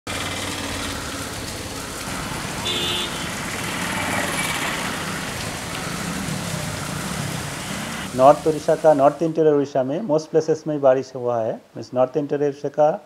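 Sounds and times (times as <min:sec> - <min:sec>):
heavy rain pouring: 0:00.1 - 0:09.5.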